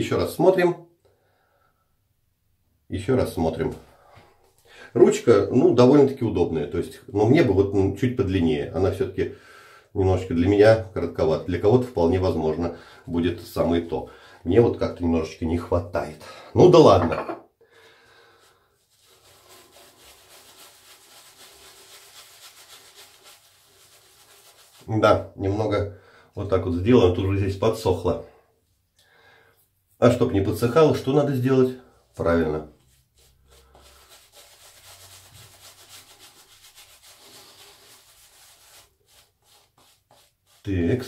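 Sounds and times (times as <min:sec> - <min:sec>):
shaving brush rubbing on stubble: 0:18.5 - 0:25.0, 0:31.4 - 0:41.0.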